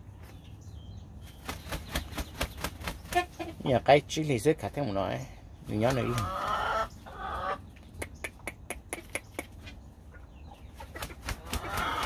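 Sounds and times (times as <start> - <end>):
wing flaps: 1.3 - 3.3
rooster clucking: 6.0 - 12.0.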